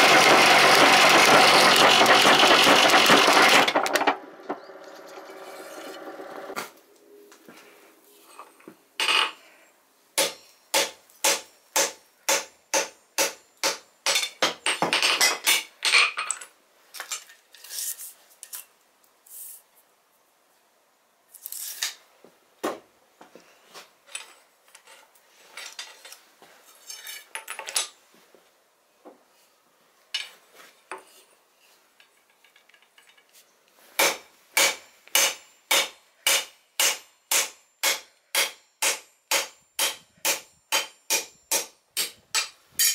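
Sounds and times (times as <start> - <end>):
hammer striking steel on anvil: 10.2 - 14.3, 34.0 - 42.9.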